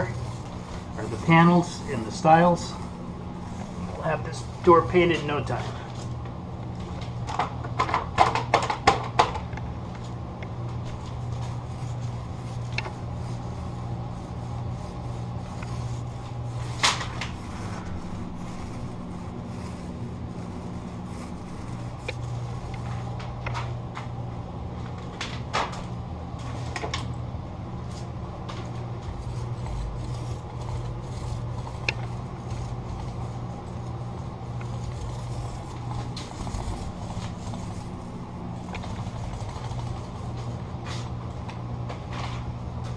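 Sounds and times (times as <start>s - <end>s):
paint roller rolling: 0.0s - 6.1s, 10.7s - 25.0s, 27.9s - 41.2s
steady low hum: 0.0s - 42.9s.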